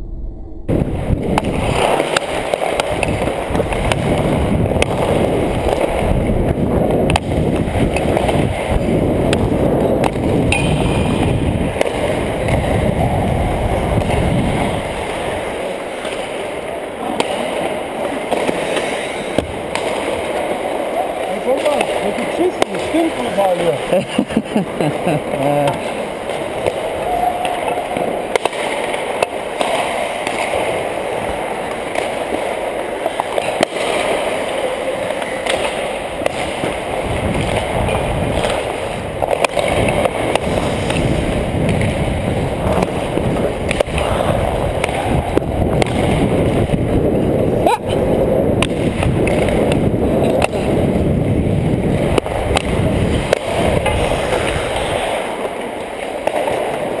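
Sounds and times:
wind rumbling on microphone: 0:00.0 - 0:17.0, 0:35.8 - 0:56.0
skates scraping on ice: 0:01.0 - 0:57.0.

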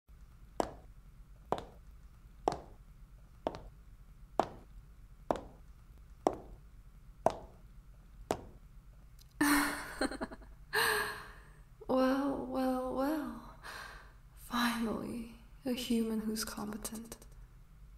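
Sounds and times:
soft sharp taps: 0:00.6 - 0:00.9, 0:01.5 - 0:01.8, 0:02.5 - 0:02.8, 0:03.4 - 0:03.8, 0:04.4 - 0:04.7, 0:05.3 - 0:05.6, 0:06.2 - 0:06.6, 0:07.2 - 0:07.6, 0:08.3 - 0:08.6.

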